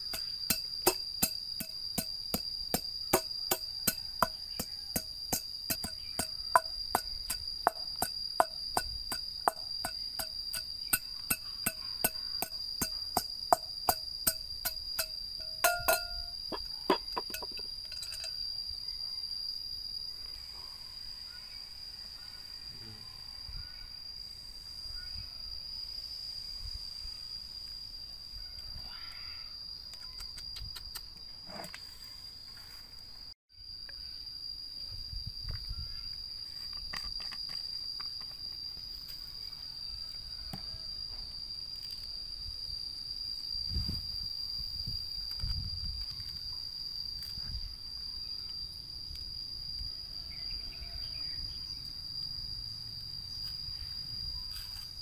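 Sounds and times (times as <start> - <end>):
high-pitched insect drone: 0.0 - 55.0.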